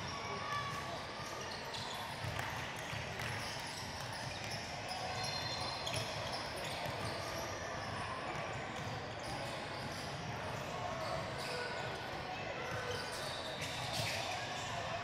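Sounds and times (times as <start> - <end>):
basketball bouncing on court: 2.1 - 4.6.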